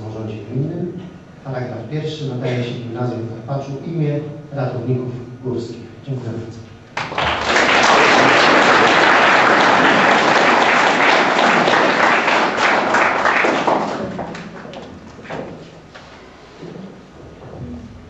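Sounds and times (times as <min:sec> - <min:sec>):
audience applauding: 0:07.0 - 0:15.4.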